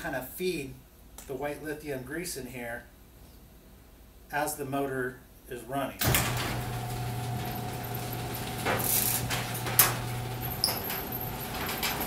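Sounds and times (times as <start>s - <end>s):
garage door opener motor hum: 6.0s - 12.0s.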